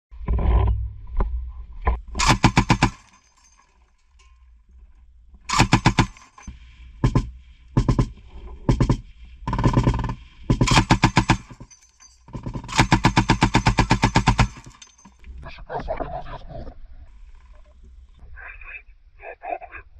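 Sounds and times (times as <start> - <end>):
heavy machine gun firing bursts: 2.2 - 3.2, 5.5 - 6.4, 8.8 - 11.7, 12.4 - 14.8.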